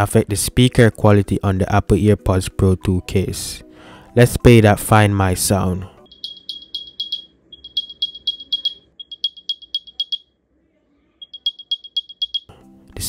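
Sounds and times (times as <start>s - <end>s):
rapid high electronic chirps: 6.1s - 10.2s, 11.2s - 12.5s.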